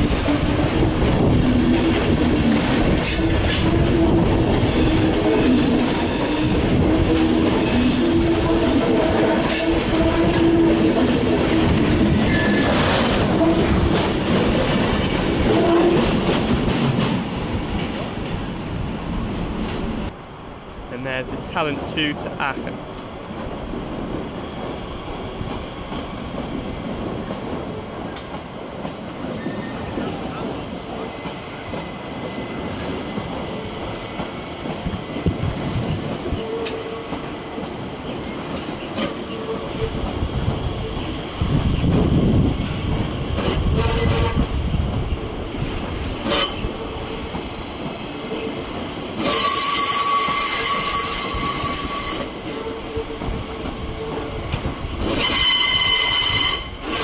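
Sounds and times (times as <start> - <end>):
train wheels rumbling on rails: 0.0 - 57.0
high-pitched squeal: 7.6 - 9.7.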